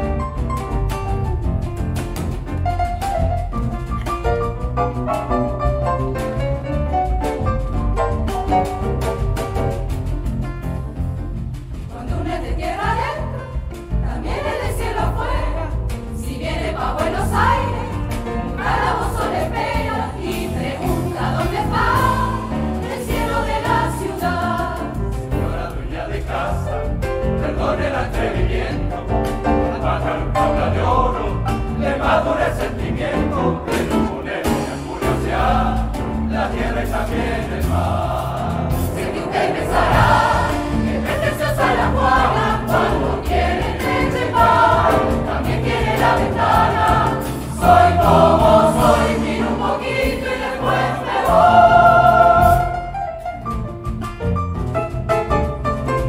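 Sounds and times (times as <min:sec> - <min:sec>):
instrumental accompaniment: 0:00.0 - 0:56.0
mixed choir singing: 0:11.6 - 0:53.2.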